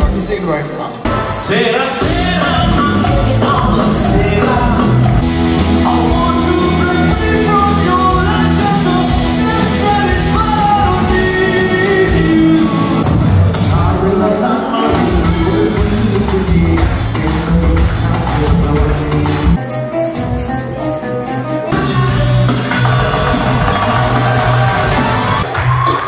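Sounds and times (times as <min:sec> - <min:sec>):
live band playing: 0:00.0 - 0:26.0
man singing: 0:01.0 - 0:19.7.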